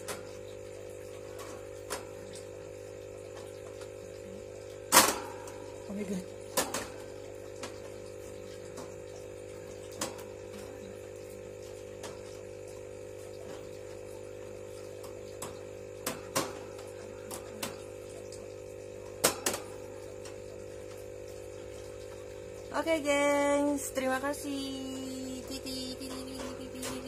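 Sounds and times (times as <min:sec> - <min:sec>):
steady background hum: 0:00.0 - 0:27.0.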